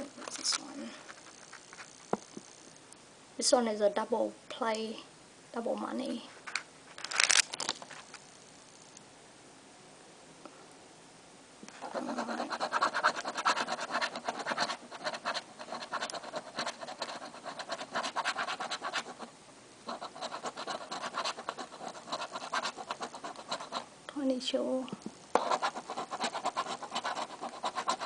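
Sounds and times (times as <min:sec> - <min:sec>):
coin scratching lottery ticket: 0:11.8 - 0:19.3, 0:19.9 - 0:23.9, 0:25.4 - 0:28.0.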